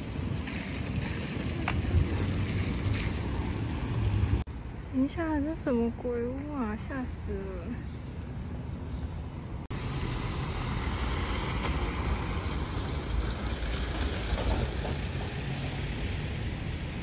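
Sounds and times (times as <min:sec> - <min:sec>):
tyres hissing on wet road: 0:00.0 - 0:04.5, 0:09.6 - 0:17.0
wind rumbling on microphone: 0:00.0 - 0:04.9
traffic: 0:00.0 - 0:17.0.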